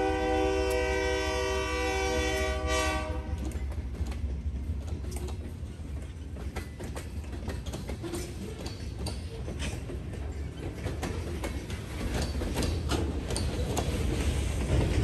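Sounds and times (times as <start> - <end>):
locomotive air horn: 0.0 - 3.5
train wheels clicking and clattering: 2.3 - 15.0.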